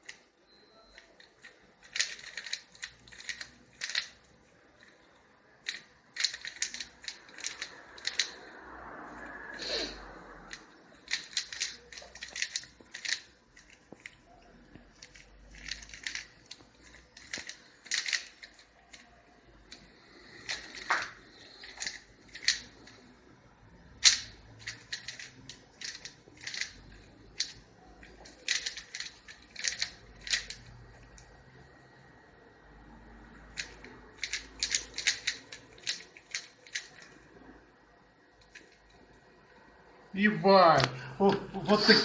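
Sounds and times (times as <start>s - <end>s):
puzzle cube clicking: 0.9s - 8.5s, 10.5s - 23.1s, 23.8s - 31.4s, 33.5s - 37.2s.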